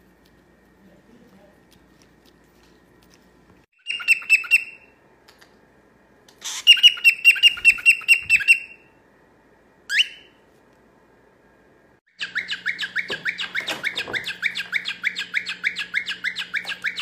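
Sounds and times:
cockatiel chirping: 3.8 - 4.9, 6.4 - 8.8, 9.9 - 10.4, 12.2 - 17.0.

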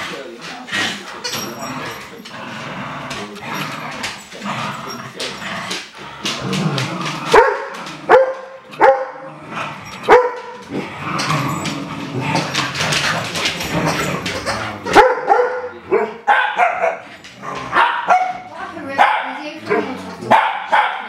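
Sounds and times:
dogs scuffling: 0.0 - 21.0
dogs barking: 7.2 - 10.7, 12.9 - 21.0.

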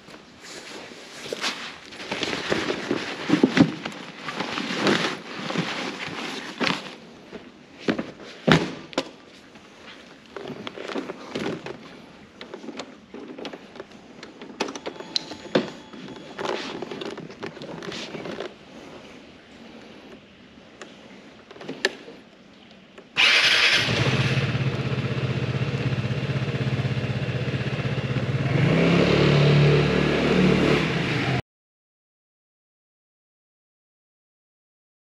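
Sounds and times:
backpack rustling: 0.4 - 14.0, 15.2 - 19.1.

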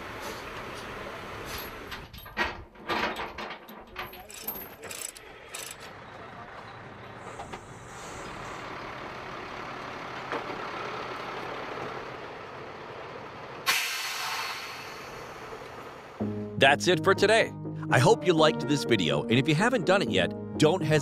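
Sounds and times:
faint chain clinks: 3.9 - 5.8
truck engine running: 4.4 - 16.2
air hissing: 13.6 - 15.5.

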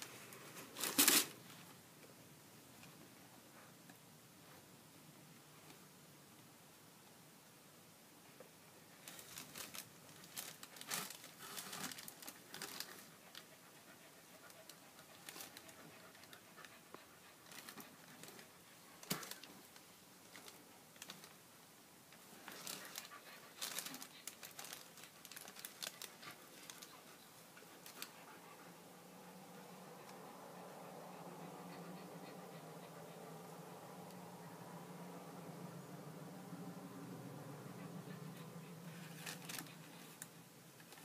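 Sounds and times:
tissue paper crinkling: 0.0 - 1.4, 9.0 - 13.1, 22.4 - 27.0, 38.9 - 40.2.

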